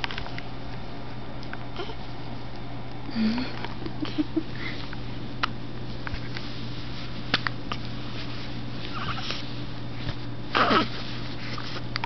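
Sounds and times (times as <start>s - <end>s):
steady low hum: 0.0s - 12.0s
baby hiccuping: 10.6s - 10.9s.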